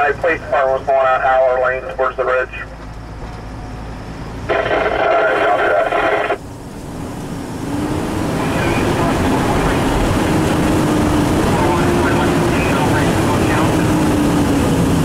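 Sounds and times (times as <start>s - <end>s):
fire engine running: 0.0s - 15.0s.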